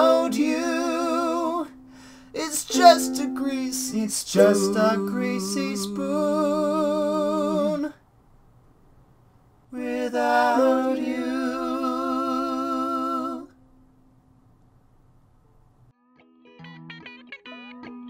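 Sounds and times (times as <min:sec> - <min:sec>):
person singing wordless notes: 0:00.0 - 0:08.0, 0:09.8 - 0:13.6.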